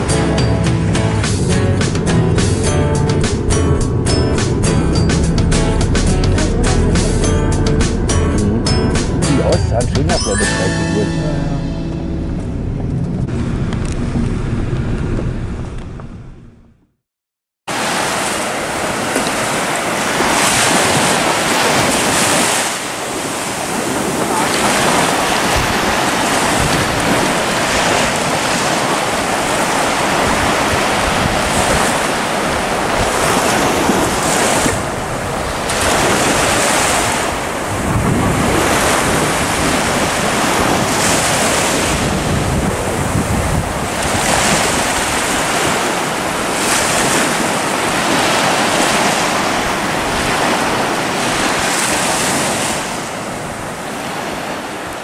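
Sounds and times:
sea surf breaking: 0:00.0 - 0:15.0, 0:17.7 - 0:55.0
wind buffeting microphone: 0:18.2 - 0:54.9.

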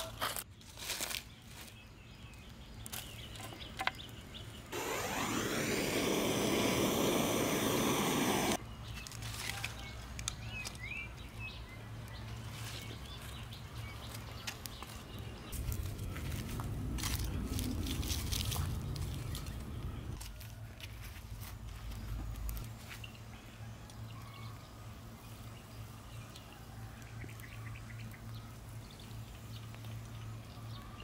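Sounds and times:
birds chirping: 0:01.8 - 0:09.0
rushing noise with falling sweep: 0:04.7 - 0:08.6.

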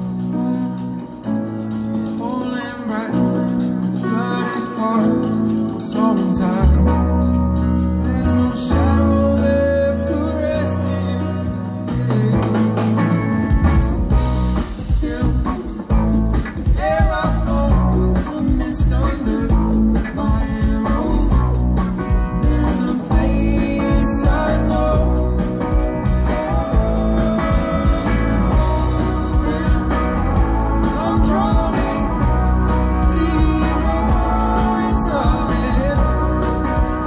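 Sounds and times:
bass guitar: 0:00.0 - 0:37.0
drums: 0:00.0 - 0:37.0
electric guitars: 0:00.0 - 0:37.0
keyboards: 0:00.0 - 0:37.0.

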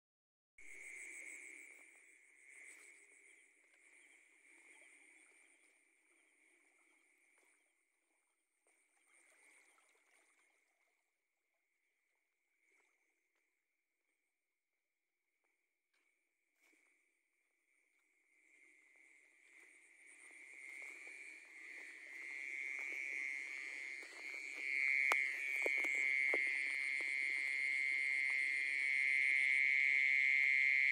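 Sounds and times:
frogs calling: 0:20.1 - 0:30.9.

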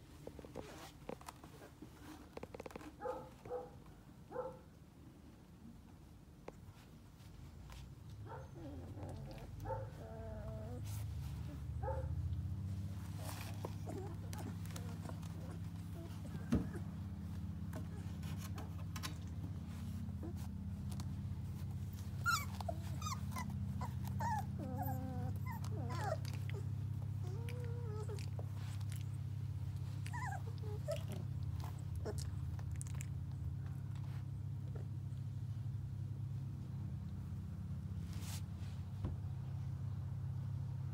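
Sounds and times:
puppy whining: 0:08.3 - 0:18.8, 0:19.4 - 0:33.4
puppies whimpering: 0:13.2 - 0:18.2, 0:21.9 - 0:29.1, 0:29.8 - 0:33.0
puppy yips: 0:22.2 - 0:28.3.

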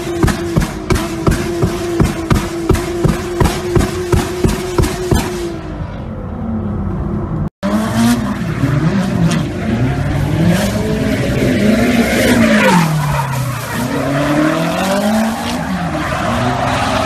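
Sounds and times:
car engine revving: 0:00.0 - 0:06.1, 0:06.9 - 0:17.0.

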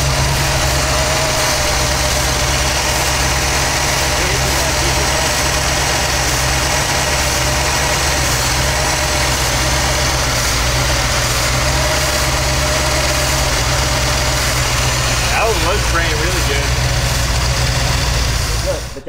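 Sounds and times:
machine droning steadily: 0:00.0 - 0:19.0.

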